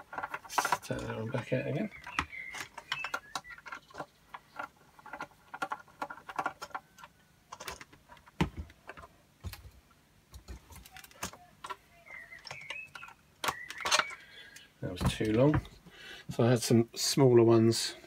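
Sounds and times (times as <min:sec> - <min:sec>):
screwdriver clicks and rattles: 0:02.0 - 0:08.3
knocks of handled parts and tools: 0:07.5 - 0:11.8, 0:14.9 - 0:15.8.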